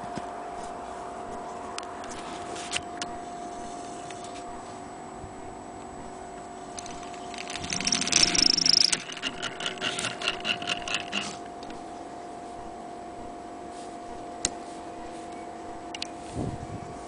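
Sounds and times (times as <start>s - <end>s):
hand-crank sewing machine whirring: 6.8s - 11.5s.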